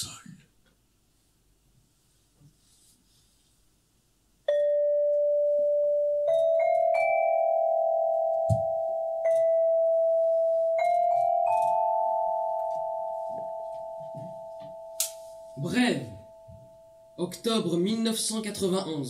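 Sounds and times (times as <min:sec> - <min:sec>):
metallophone notes: 0:04.5 - 0:18.2.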